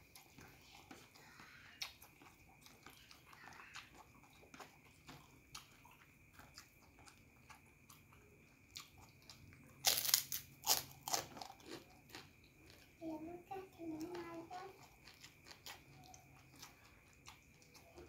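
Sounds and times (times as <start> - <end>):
soft chewing and mouth clicks: 0.0 - 18.0
cracker crunching: 8.7 - 12.8.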